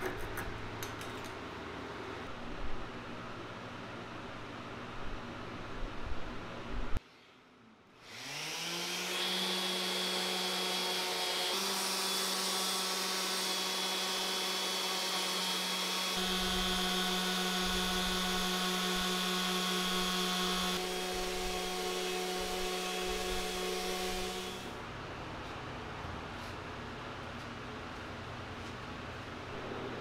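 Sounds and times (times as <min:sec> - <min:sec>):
orbital sander on wood: 0:08.0 - 0:24.8.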